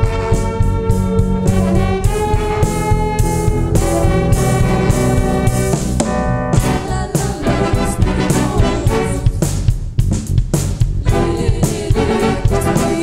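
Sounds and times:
brass section holding chords: 0.0s - 9.5s, 11.1s - 13.0s
keyboard: 0.0s - 9.5s
drum beat: 0.0s - 13.0s.

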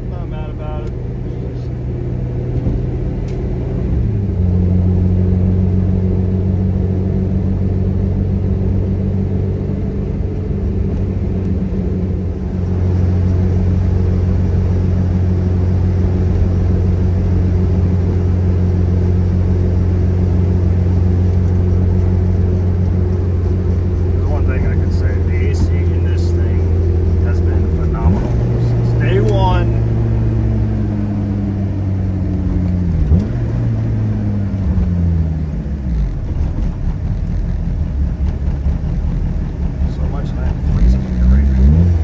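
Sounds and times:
car engine and road noise: 0.0s - 42.0s.

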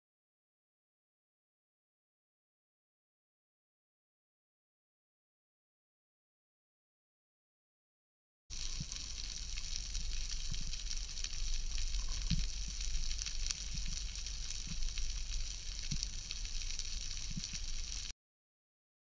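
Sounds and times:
low rumble of water: 8.5s - 18.1s
underwater crackling hiss: 8.5s - 18.1s.

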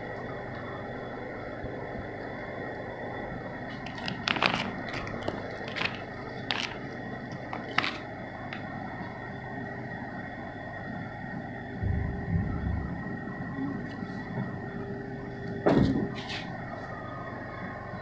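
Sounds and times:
steady background hum: 0.0s - 18.0s
plastic bag crinkling: 3.7s - 8.1s.

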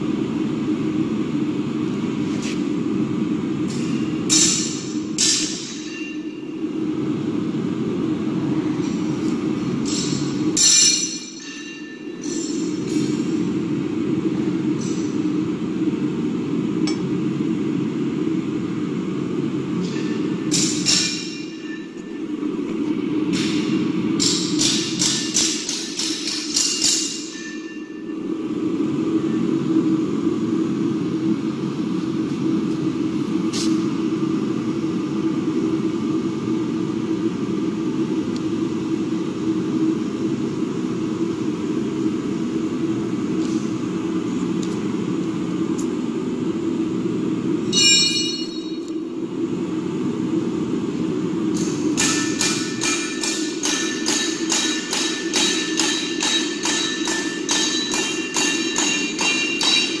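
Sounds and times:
ringing chime: 47.7s - 48.8s.

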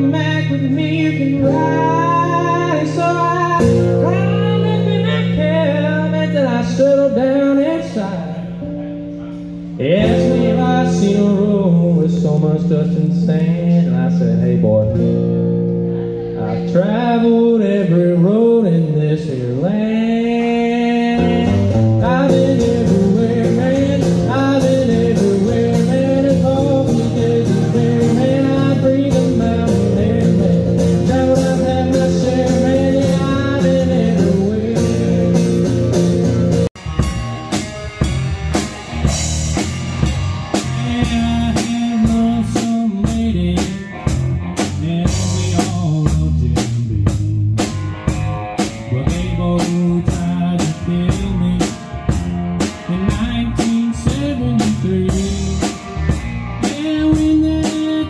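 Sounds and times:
solo acoustic guitar country song: 0.0s - 36.7s
blues-rock band with drums: 0.0s - 58.0s.

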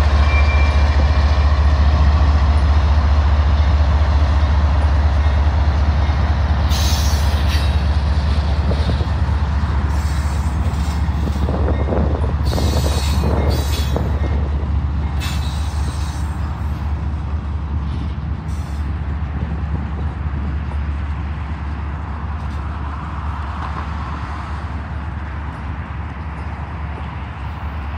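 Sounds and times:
train wheels rumbling on rail: 0.0s - 27.9s
high-pitched wheel squeals: 0.2s - 1.1s.

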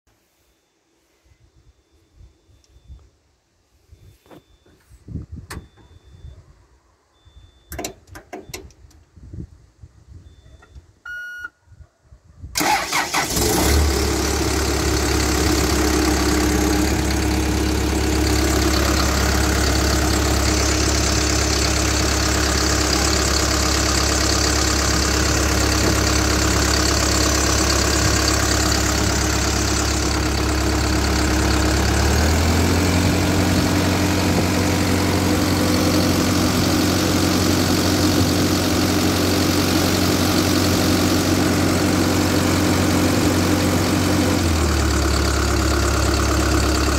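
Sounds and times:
diesel engine cranking and idling: 12.6s - 46.9s.

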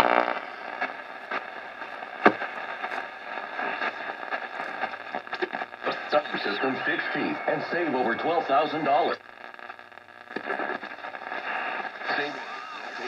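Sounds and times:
radio static hiss: 0.0s - 13.0s
faint radio whistles: 5.8s - 9.2s, 10.6s - 13.0s.

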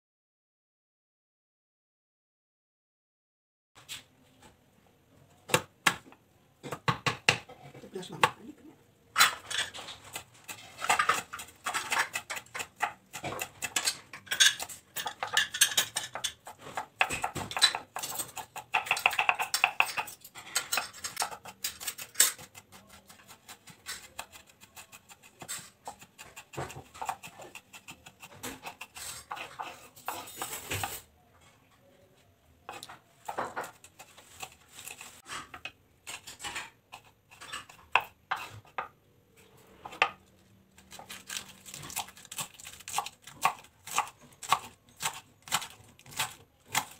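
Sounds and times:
knife chopping on wooden board: 5.5s - 7.5s, 10.0s - 20.1s, 22.2s - 30.9s, 40.9s - 46.9s.

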